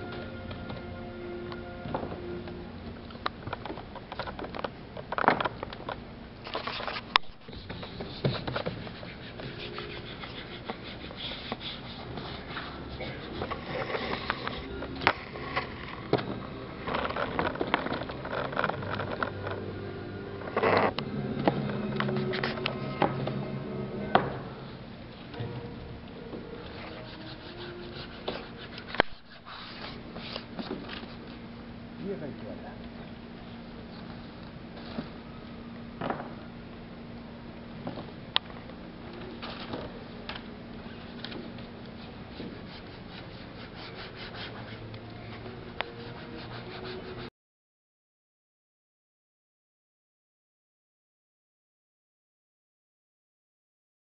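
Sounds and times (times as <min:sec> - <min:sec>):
hands rubbing paint on canvas: 0:06.5 - 0:14.7, 0:26.6 - 0:31.4, 0:40.9 - 0:47.3.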